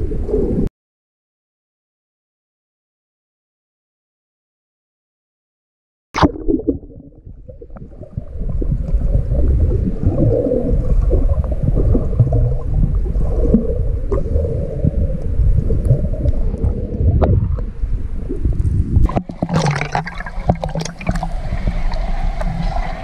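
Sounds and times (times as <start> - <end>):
muffled underwater rumble: 0.0 - 0.7, 6.2 - 23.0
water gurgling and bubbling: 6.2 - 23.0.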